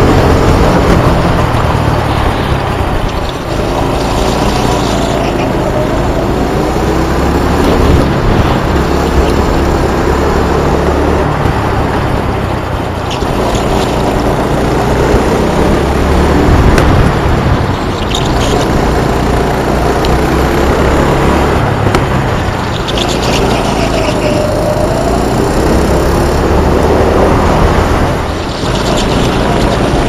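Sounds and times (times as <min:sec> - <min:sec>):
go-kart engine revving: 0:00.0 - 0:30.0
steady rush of noise: 0:00.0 - 0:30.0.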